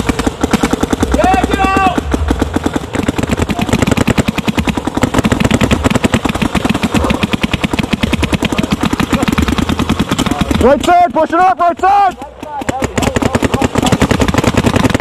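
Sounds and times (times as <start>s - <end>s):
paintball markers firing rapidly: 0.0s - 15.0s.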